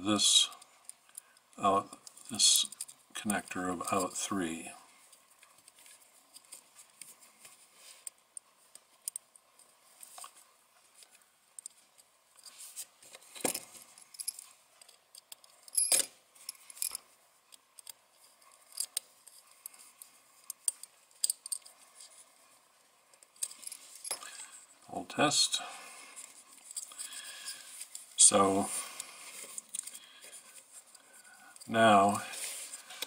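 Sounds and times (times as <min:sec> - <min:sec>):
small clicks and taps of wires: 0:05.1 - 0:10.4, 0:11.0 - 0:12.1, 0:17.5 - 0:18.0.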